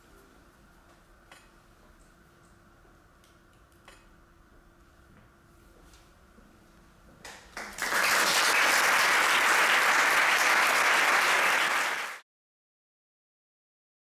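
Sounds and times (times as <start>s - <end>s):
audience applauding: 7.5s - 12.2s.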